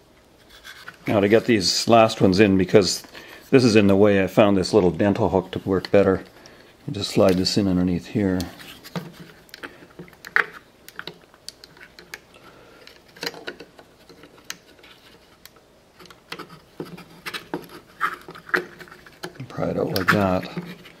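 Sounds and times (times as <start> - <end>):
plastic clicks and scratches: 8.4 - 21.0.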